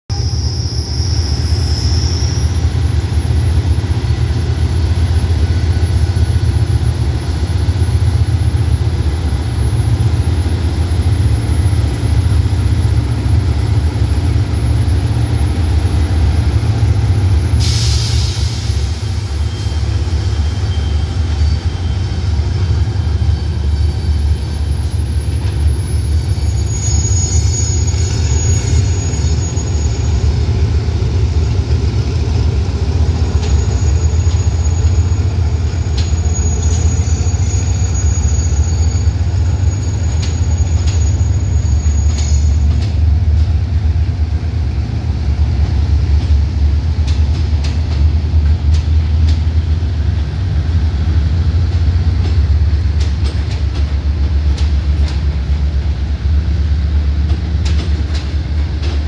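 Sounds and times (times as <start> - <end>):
locomotive engine rumbling: 0.1 - 59.0
air hiss burst: 17.6 - 19.4.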